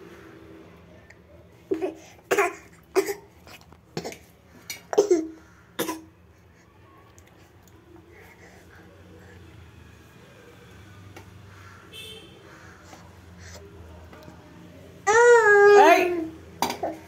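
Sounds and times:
child coughing: 1.7s - 3.3s, 4.9s - 6.1s.

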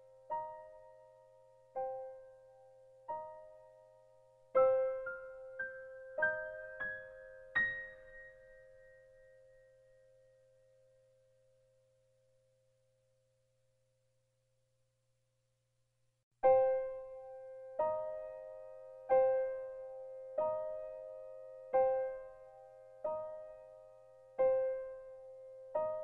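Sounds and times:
soft piano notes: 0.0s - 10.4s, 16.4s - 26.0s.

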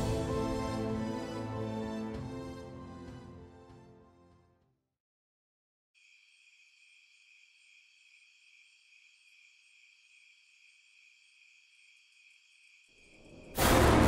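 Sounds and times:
crickets chirping: 6.0s - 13.6s.

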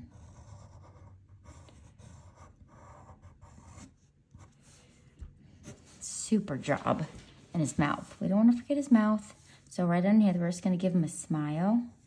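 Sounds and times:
pencil scratching on paper: 0.0s - 6.2s.

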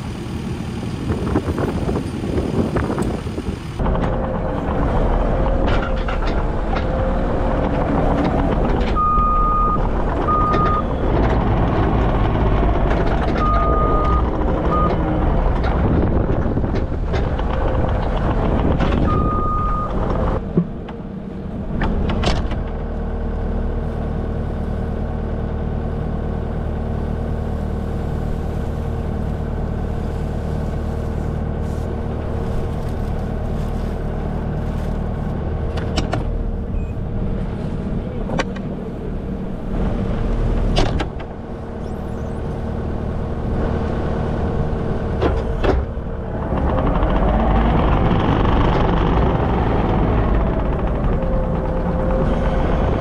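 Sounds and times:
loader engine running: 0.0s - 53.0s
reversing alarm beeping: 9.0s - 10.9s, 13.4s - 15.0s, 19.1s - 19.9s.

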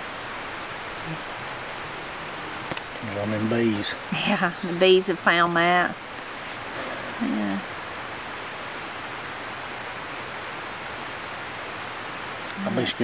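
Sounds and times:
outdoor background hiss: 0.0s - 13.0s
person murmuring: 6.8s - 7.7s.

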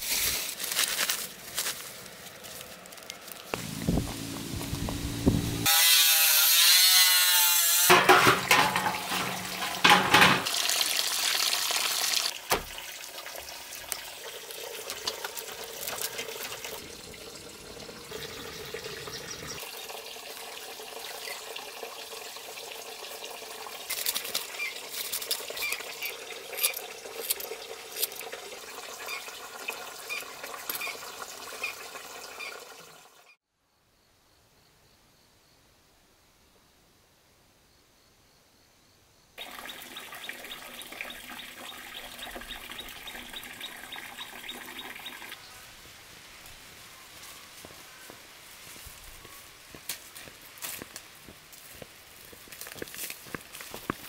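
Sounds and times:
angle grinder cutting metal: 5.5s - 10.1s.

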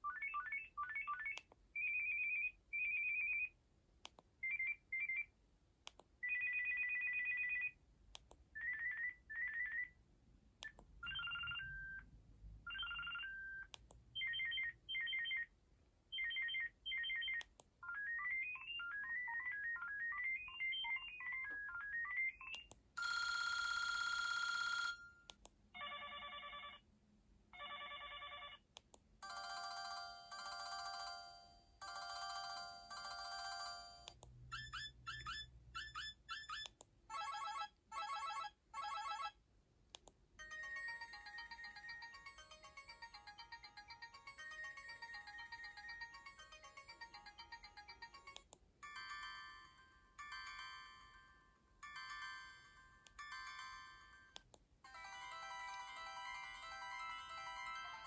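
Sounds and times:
phone electronic beep patterns: 10.6s - 12.1s, 12.7s - 15.5s, 16.1s - 23.3s, 33.7s - 39.4s
phone ring tones: 16.3s - 26.8s, 29.2s - 39.4s, 40.4s - 51.2s, 54.9s - 58.0s.

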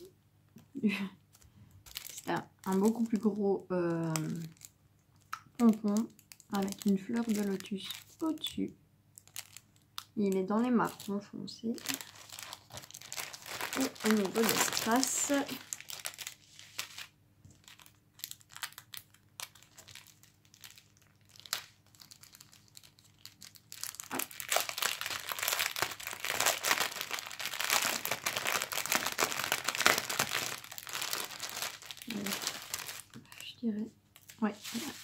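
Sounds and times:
plastic bags crinkling: 1.3s - 8.6s, 9.2s - 33.5s, 34.2s - 35.0s.

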